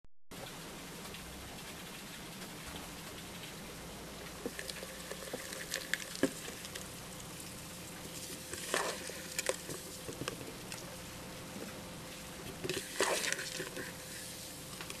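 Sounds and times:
insects tapping on plastic cup: 8.2s - 10.8s.

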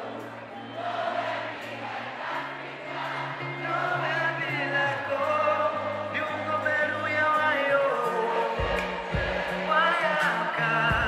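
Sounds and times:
crowd singing along: 0.0s - 11.0s
live band music: 3.0s - 11.0s.

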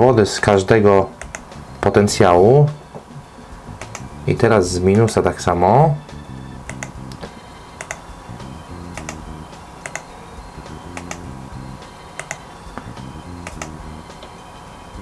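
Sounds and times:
soft background music: 0.0s - 15.0s
computer mouse clicks: 1.2s - 1.5s, 3.8s - 4.1s, 6.7s - 7.0s, 7.8s - 8.0s, 9.0s - 9.2s, 9.8s - 10.1s, 10.9s - 11.3s, 12.2s - 12.5s, 13.4s - 13.8s.

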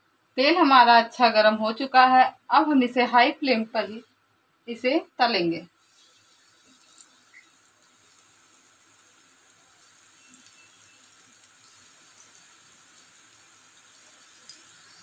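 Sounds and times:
bread sizzling in hot oil: 5.7s - 15.0s.

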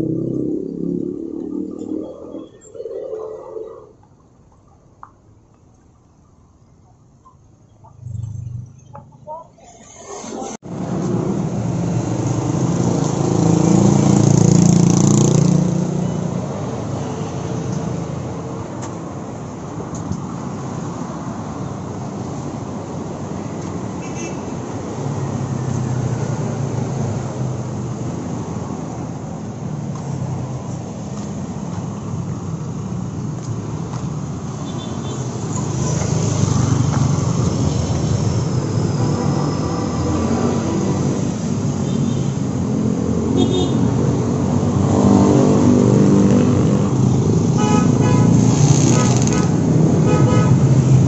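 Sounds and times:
loud vehicle passing: 0.0s - 2.4s, 10.4s - 18.4s, 35.2s - 51.0s
passing cars and motorcycles: 0.0s - 4.7s, 7.8s - 51.0s.

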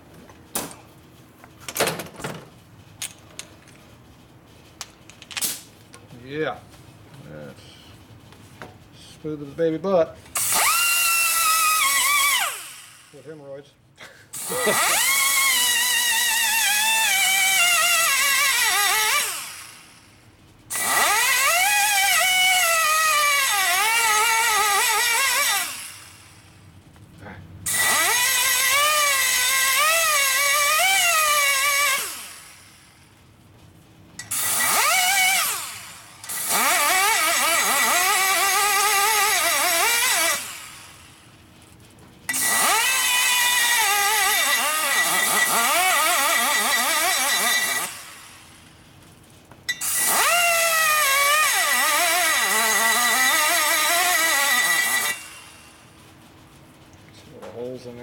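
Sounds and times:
die grinder cutting metal: 10.4s - 13.4s, 14.4s - 19.9s, 20.7s - 26.3s, 27.7s - 32.7s, 34.2s - 41.1s, 42.3s - 48.6s, 49.7s - 55.8s.

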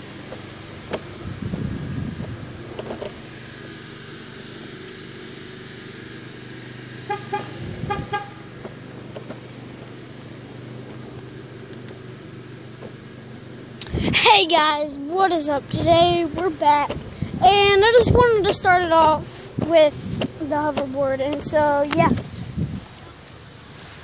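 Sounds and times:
hoverboard rolling on concrete: 12.6s - 24.0s.

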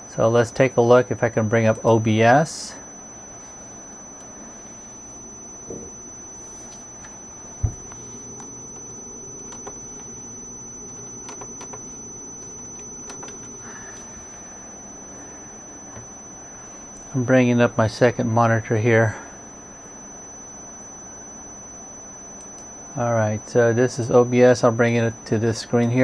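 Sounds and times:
high-pitched electronic whine: 0.0s - 26.0s
low hum: 1.2s - 25.9s
dull thump: 7.6s - 7.9s.

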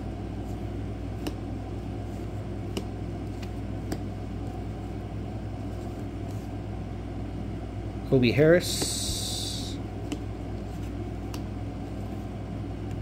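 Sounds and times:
steady low hum: 0.0s - 13.0s
cards flicking clicks: 1.1s - 1.5s, 2.7s - 4.1s, 10.0s - 11.5s.

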